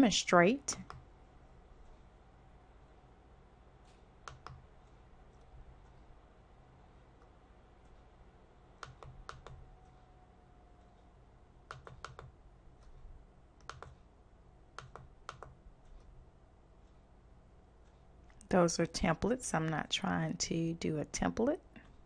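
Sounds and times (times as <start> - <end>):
low steady hum: 0.0 - 22.0
computer mouse clicking: 0.8 - 1.1, 3.8 - 6.1, 8.8 - 10.0, 11.6 - 13.0, 13.6 - 14.1, 14.7 - 16.2.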